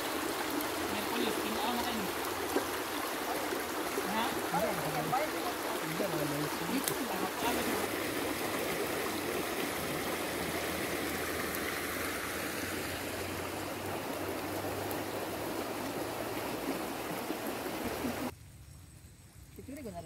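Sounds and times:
river rushing over stones: 0.0 - 18.3.

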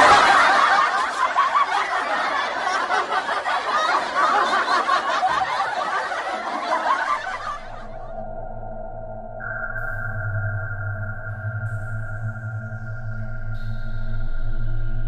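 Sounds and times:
laugh track: 0.0 - 8.2.

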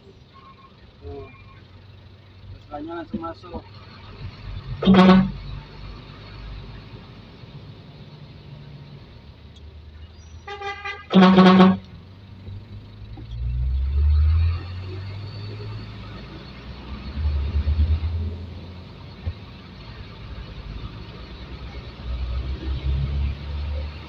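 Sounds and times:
diesel truck engine rumbling: 0.0 - 24.0
truck horn toots: 4.8 - 5.6, 10.4 - 11.9.

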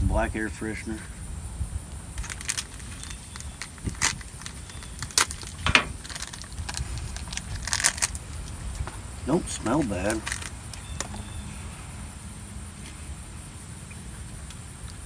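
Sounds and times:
plastic wrapper crinkling: 2.2 - 8.9, 9.5 - 11.2.

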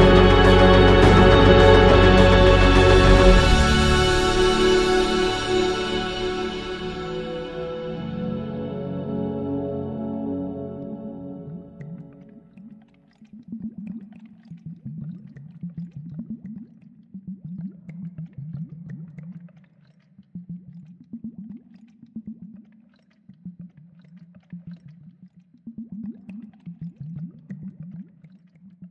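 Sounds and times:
water gurgling and bubbling: 10.6 - 19.7.

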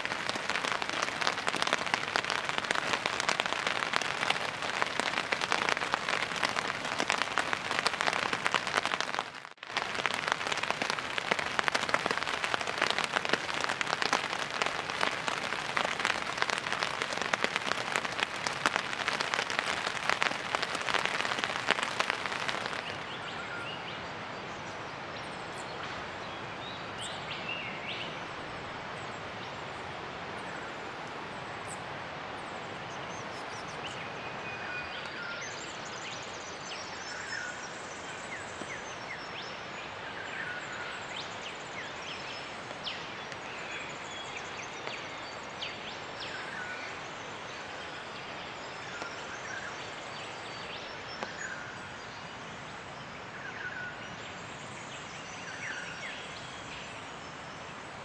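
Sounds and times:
rain falling: 0.0 - 25.0, 27.8 - 58.0
forest background: 0.0 - 58.0.

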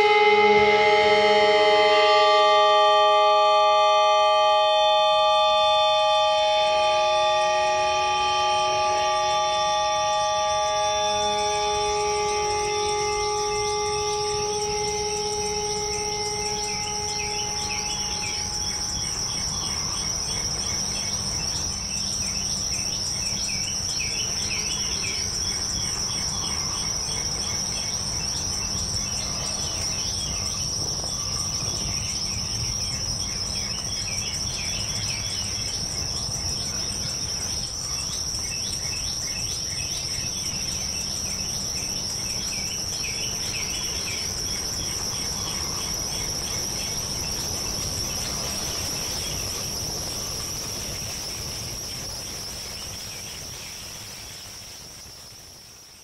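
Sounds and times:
held low note: 0.0 - 19.7
crickets and insects chirping: 0.0 - 56.0.

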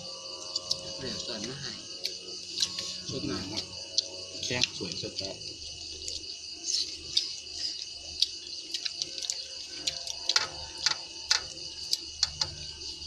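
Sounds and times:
crickets trilling: 0.0 - 13.0
clicks and taps on metal bowls: 8.2 - 12.7.

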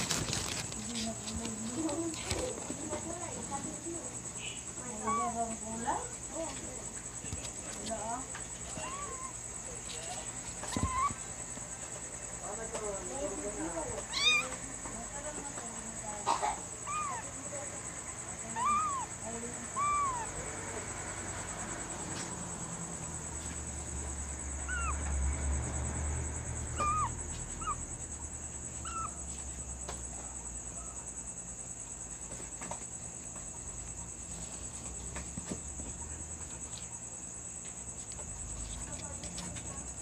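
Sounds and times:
kitten mewing: 5.0 - 5.4, 8.7 - 9.4, 10.7 - 11.3, 14.0 - 14.6, 16.3 - 17.3, 18.5 - 20.4, 24.6 - 25.0, 26.8 - 27.8.

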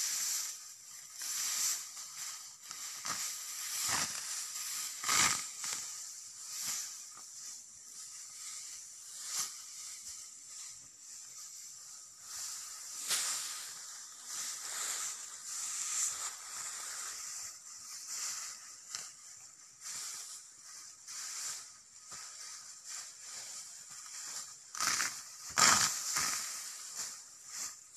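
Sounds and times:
dry grass rustling and crackling: 0.0 - 27.9
faint high hiss: 0.0 - 27.9.

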